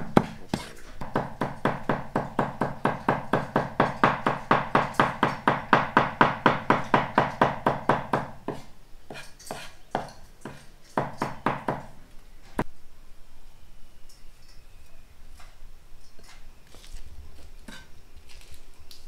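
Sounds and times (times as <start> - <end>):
knife chopping on wooden board: 0.0 - 11.9.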